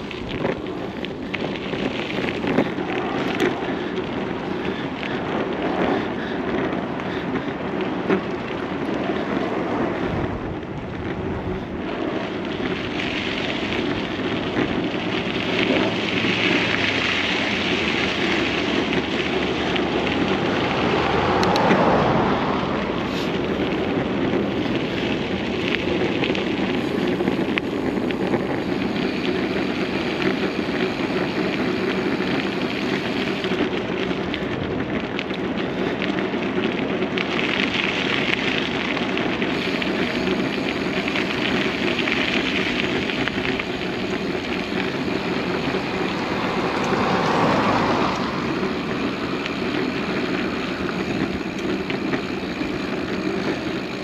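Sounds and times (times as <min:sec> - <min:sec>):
wind noise on microphone: 0:00.0 - 0:54.0.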